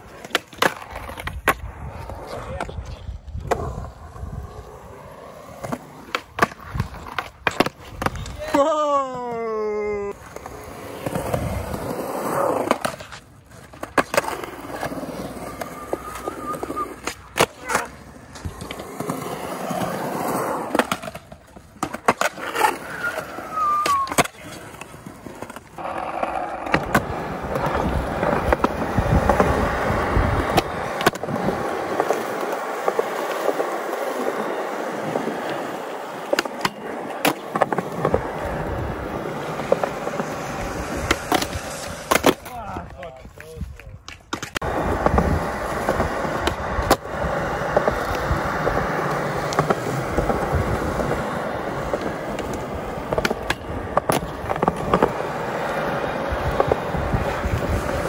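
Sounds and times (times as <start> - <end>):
skateboard clacking on ground: 0.0 - 3.8, 5.2 - 58.0
skateboard wheels rolling on concrete: 0.0 - 58.0.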